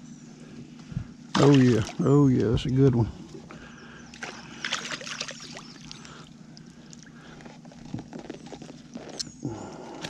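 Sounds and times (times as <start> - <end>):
steady low hum: 0.0 - 10.0
water splashing and dripping: 1.3 - 2.1.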